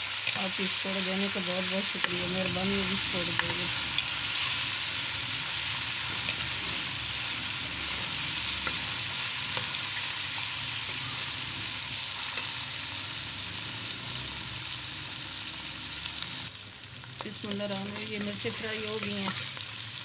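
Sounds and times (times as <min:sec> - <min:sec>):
vegetables sizzling in hot oil: 0:00.0 - 0:20.0
steel spoon scraping a wok: 0:03.1 - 0:12.8.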